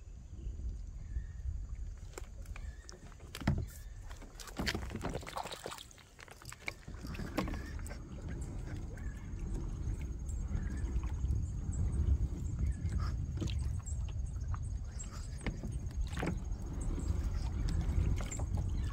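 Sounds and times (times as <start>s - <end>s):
water splashing against kayak: 1.0s - 18.9s
steady low rumble: 7.0s - 18.9s.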